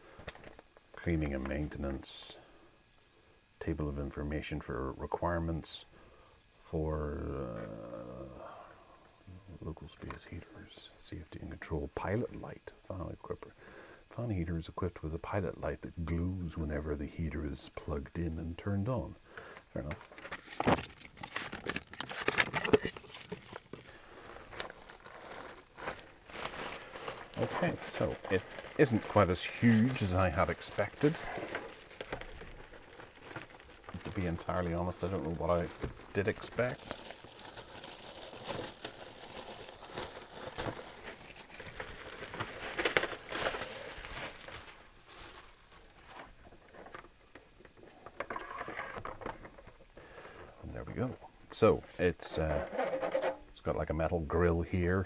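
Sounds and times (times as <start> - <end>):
plastic bag crackling: 19.8 - 46.1
paper manual rustling: 19.8 - 47.0, 48.2 - 49.5.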